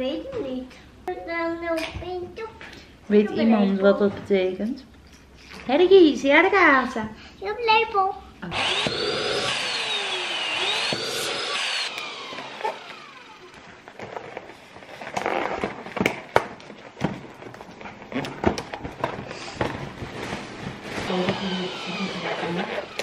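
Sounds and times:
electric balloon pump whine: 0:08.5 - 0:14.5, 0:20.9 - 0:23.0
balloons squeaking and rubbing: 0:14.6 - 0:16.0.

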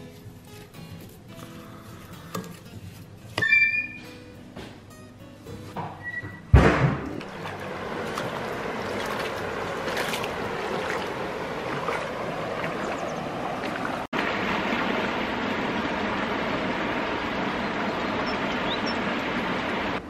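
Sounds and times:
river water rushing: 0:07.2 - 0:20.0.

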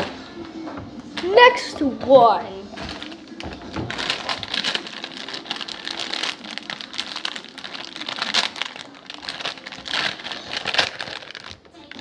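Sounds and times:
packaging crinkling: 0:02.8 - 0:12.0.

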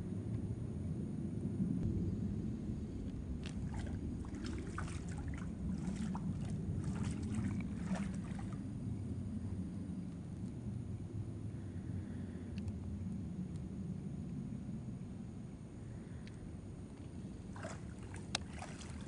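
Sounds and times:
low wind rumble: 0:00.0 - 0:19.0
splashing in shallow water: 0:03.4 - 0:08.9, 0:17.0 - 0:19.0.

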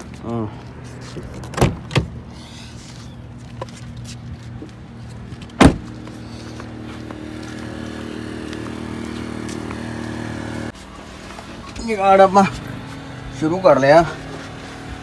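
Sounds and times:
generator engine humming: 0:04.4 - 0:15.0
loud thump: 0:05.6 - 0:05.9.

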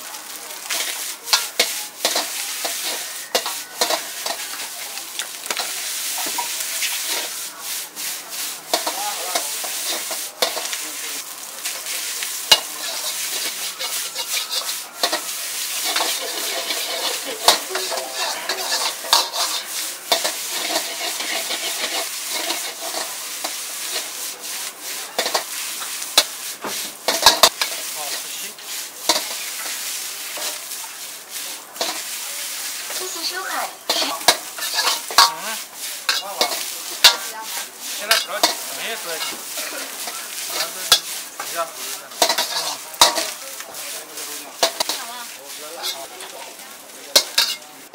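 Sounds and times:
rice sizzling in a wok: 0:00.0 - 0:47.9
steel ladle scraping a pan: 0:00.3 - 0:47.9.

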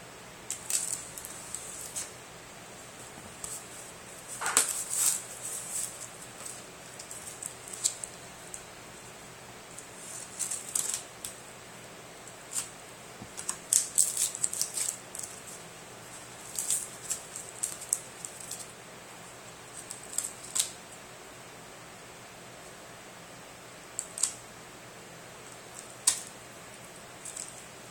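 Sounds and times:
packing tape crinkling: 0:00.5 - 0:02.1, 0:03.0 - 0:08.7, 0:09.7 - 0:11.4, 0:12.3 - 0:15.6, 0:16.2 - 0:18.7, 0:19.7 - 0:20.8, 0:27.2 - 0:27.7.

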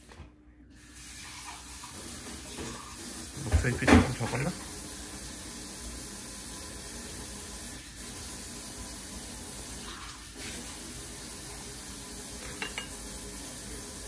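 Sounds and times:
water running hiss: 0:00.8 - 0:14.0.

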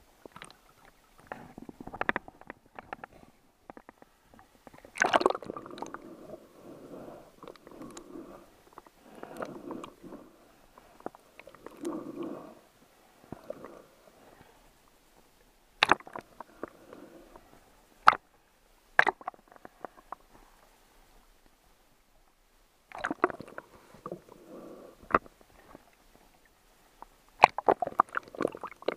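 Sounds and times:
river water gurgling and sloshing: 0:04.8 - 0:14.2.

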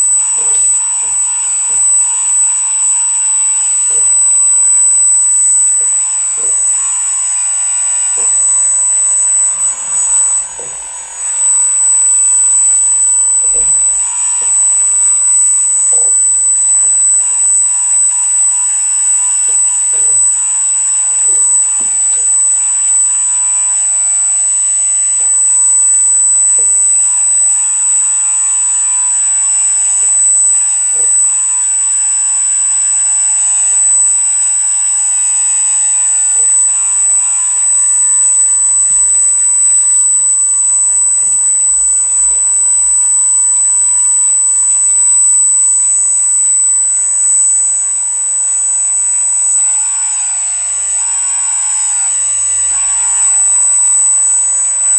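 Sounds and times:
hydraulic pump whining: 0:00.0 - 0:22.2.

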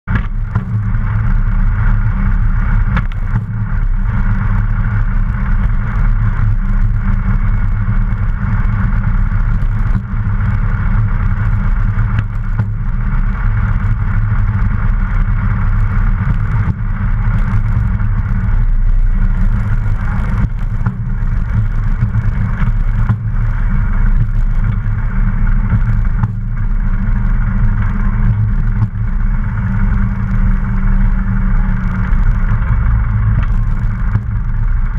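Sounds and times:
light aircraft engine and propeller: 0:00.1 - 0:34.9.

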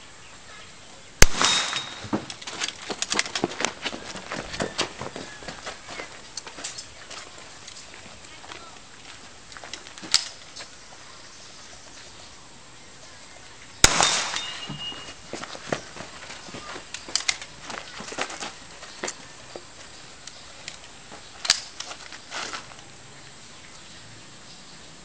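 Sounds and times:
rifle shot echoing: 0:01.2 - 0:02.4, 0:13.8 - 0:14.8
sharp crack: 0:01.2 - 0:03.7, 0:13.8 - 0:14.8
clicks of rifle loading: 0:09.7 - 0:10.5, 0:16.9 - 0:17.5, 0:20.2 - 0:22.2.

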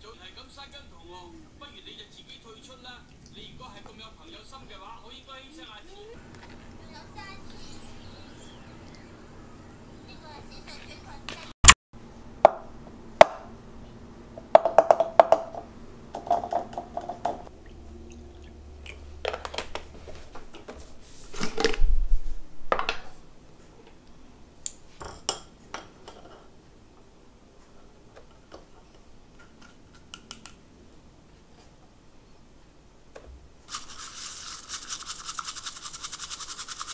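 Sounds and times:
dishes and glassware clinking: 0:25.0 - 0:26.5.

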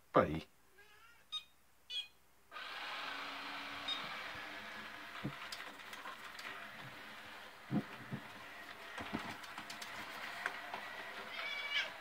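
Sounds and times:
vacuum suction motor and brushes: 0:02.6 - 0:12.0.

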